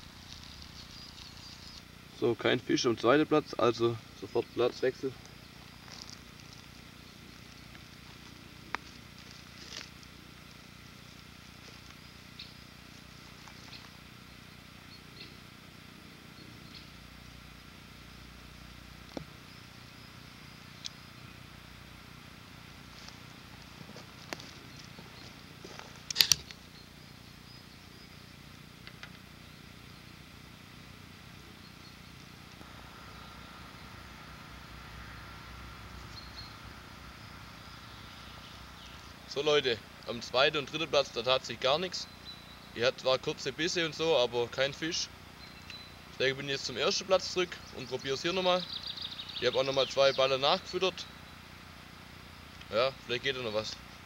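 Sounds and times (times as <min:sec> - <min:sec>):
outdoor background hiss: 0:00.0 - 0:54.0
sharp click: 0:26.0 - 0:26.6.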